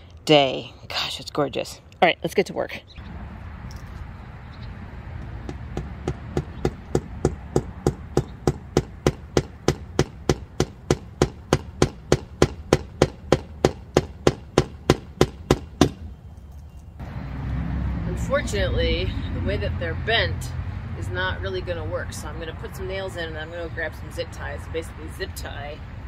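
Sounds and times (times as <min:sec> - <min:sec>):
hammer driving nail into wood: 0:05.5 - 0:16.0.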